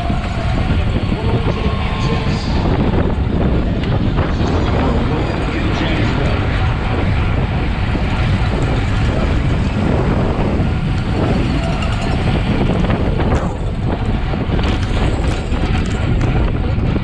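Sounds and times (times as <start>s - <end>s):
wind rushing over microphone: 0.0s - 17.0s
bike clicks and knocks: 10.8s - 16.7s.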